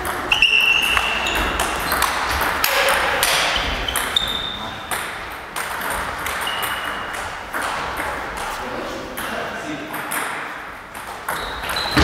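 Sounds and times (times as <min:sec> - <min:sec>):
short high squeaks: 0:00.3 - 0:02.2, 0:03.5 - 0:04.8, 0:06.4 - 0:07.1, 0:11.3 - 0:12.0.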